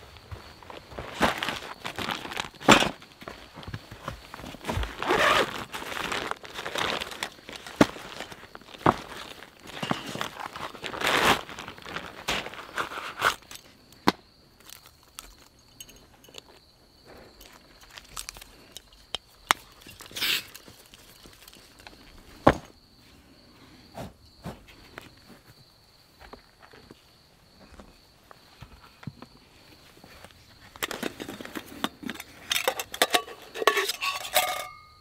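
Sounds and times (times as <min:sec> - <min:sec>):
camp gear clicking and knocking: 0:00.2 - 0:22.8, 0:30.1 - 0:34.9
stuff sack crinkling and rustling: 0:00.6 - 0:13.8, 0:14.6 - 0:22.6, 0:30.0 - 0:34.6
faint steady high tone: 0:34.0 - 0:35.0.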